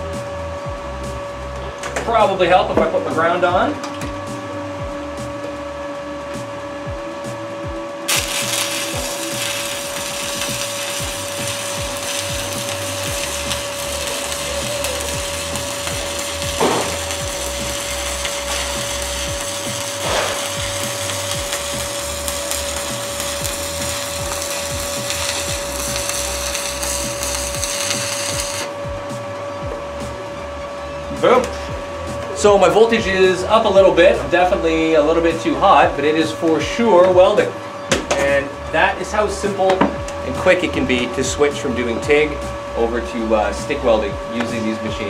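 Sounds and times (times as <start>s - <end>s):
welding arc pops: 8.1s - 28.8s
welding arc crackling: 8.1s - 28.9s.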